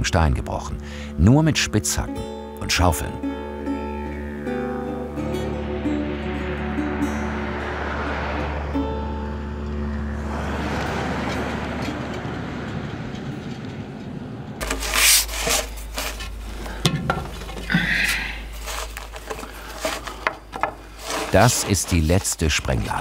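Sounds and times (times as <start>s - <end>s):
steady rushing noise: 5.1s - 17.6s
scraping and rubbing: 14.6s - 23.0s
wooden rod knocking: 18.7s - 22.1s.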